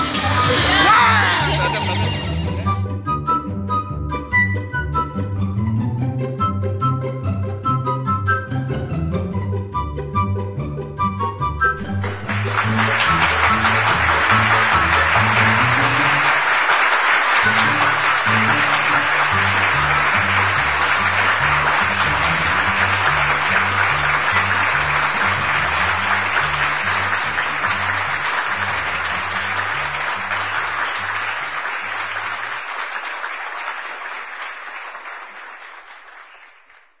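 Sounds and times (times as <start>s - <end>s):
loud dense applause: 0.0s - 2.9s, 11.7s - 37.0s
plucked bass line: 0.0s - 16.3s, 17.4s - 30.3s.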